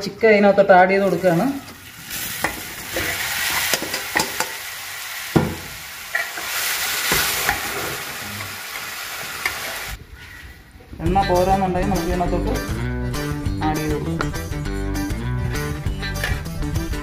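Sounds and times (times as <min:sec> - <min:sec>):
chicken sizzling in hot oil: 0:01.3 - 0:10.0.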